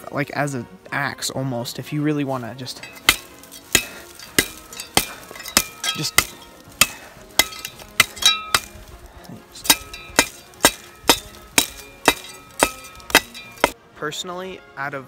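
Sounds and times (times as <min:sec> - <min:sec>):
metal blade chopping wood: 0:02.8 - 0:08.9, 0:09.6 - 0:13.8.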